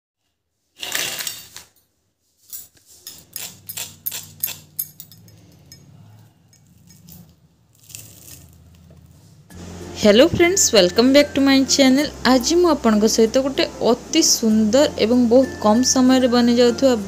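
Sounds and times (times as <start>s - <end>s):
low steady hum: 4.8s - 17.0s.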